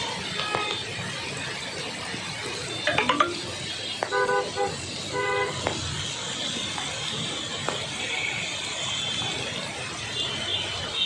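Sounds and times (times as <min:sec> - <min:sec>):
vehicle horns honking: 0:00.0 - 0:00.9, 0:04.0 - 0:05.8
rain: 0:00.0 - 0:11.0
traffic noise: 0:00.0 - 0:11.0.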